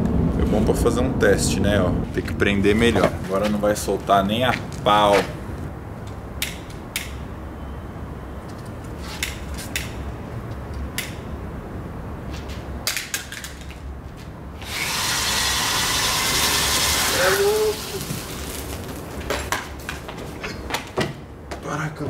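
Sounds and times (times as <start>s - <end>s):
clicks and crackles: 12.8s - 13.9s
rushing hiss of flying sparks: 14.6s - 19.0s.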